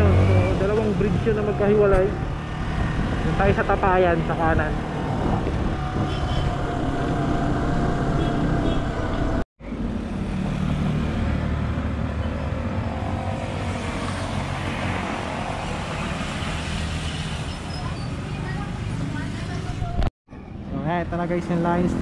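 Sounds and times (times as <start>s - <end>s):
motorcycle running: 0.0s - 15.6s
motorcycles passing: 0.0s - 20.0s
roadside traffic: 0.0s - 22.0s.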